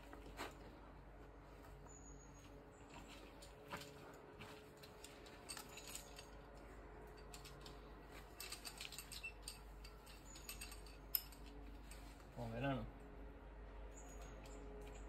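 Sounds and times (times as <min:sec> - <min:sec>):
climbing gear clinking: 0:01.9 - 0:12.5, 0:13.9 - 0:15.0.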